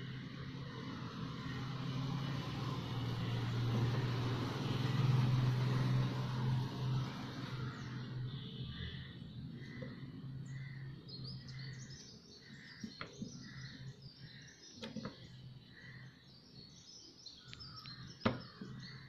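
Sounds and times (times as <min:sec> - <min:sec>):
small birds chirping: 0:06.9 - 0:19.0.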